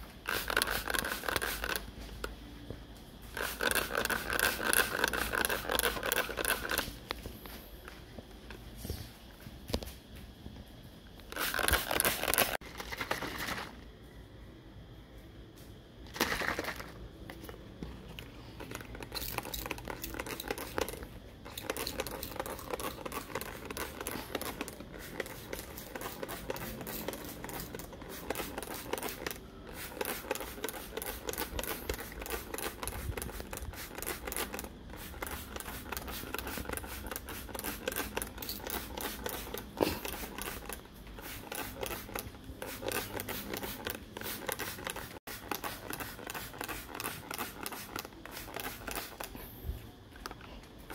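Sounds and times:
plastic bottles crinkling: 11.3s - 13.8s, 18.1s - 49.4s.

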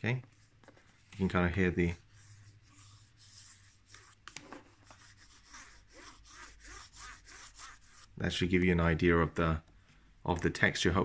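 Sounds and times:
fingertips scratching cardboard: 2.1s - 8.1s.

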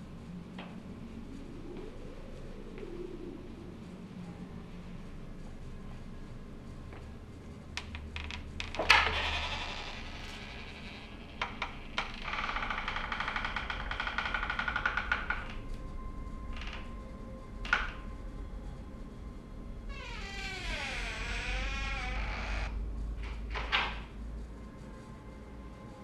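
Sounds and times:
door hinges creaking: 7.8s - 15.7s, 17.6s - 18.1s, 19.9s - 24.1s.

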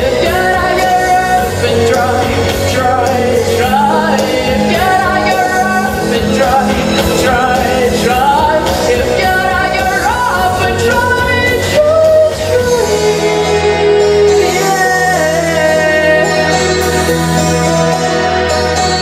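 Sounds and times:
pop backing track with beat: 0.0s - 19.0s.

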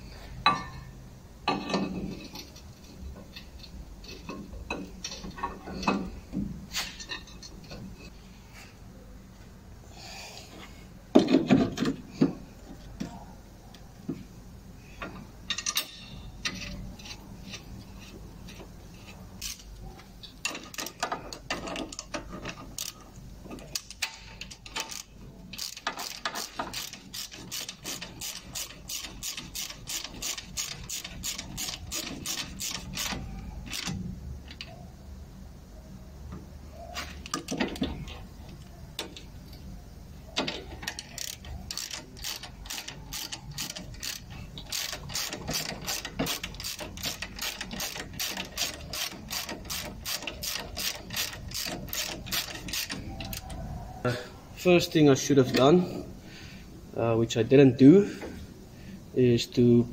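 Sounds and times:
ratchet wrench clicking: 19.4s - 34.7s, 40.4s - 53.6s.

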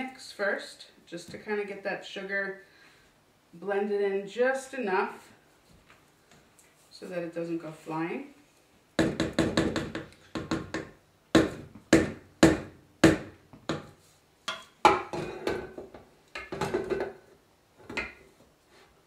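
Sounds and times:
spatula tapping metal bowl: 14.5s - 15.4s.

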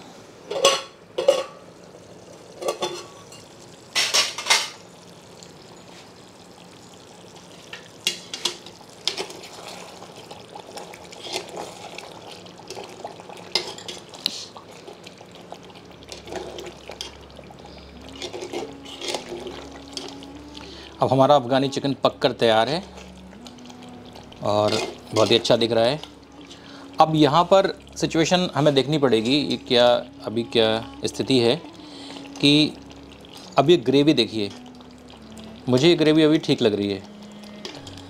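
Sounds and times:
metal lid clanking on pot: 0.5s - 1.6s, 2.6s - 4.8s
spoon stirring and scraping gravy: 7.6s - 15.1s, 18.1s - 20.2s.

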